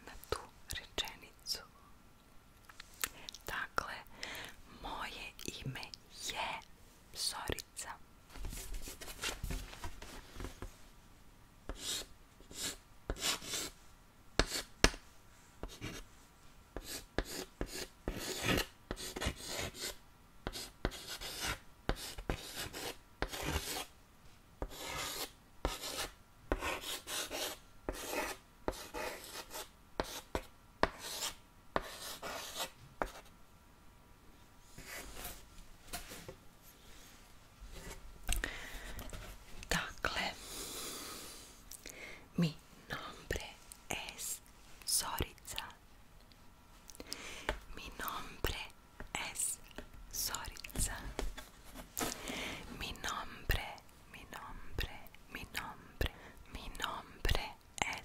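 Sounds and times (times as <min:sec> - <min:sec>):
chalk scratching on chalkboard: 0:11.7 - 0:13.8, 0:14.4 - 0:15.0, 0:15.6 - 0:16.0, 0:16.8 - 0:23.9, 0:24.6 - 0:33.3.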